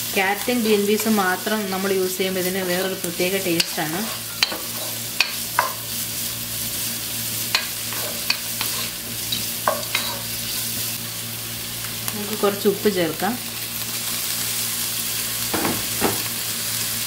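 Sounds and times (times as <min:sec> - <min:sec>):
vegetables sizzling in oil: 0:00.0 - 0:17.0
wooden spatula scraping a pot: 0:03.6 - 0:05.0, 0:07.9 - 0:09.0.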